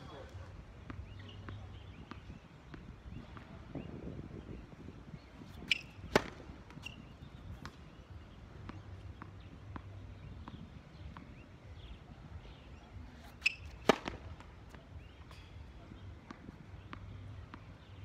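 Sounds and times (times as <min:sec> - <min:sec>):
tennis balls bouncing: 0:00.1 - 0:04.6, 0:05.2 - 0:18.0
tennis balls being struck: 0:05.3 - 0:18.0.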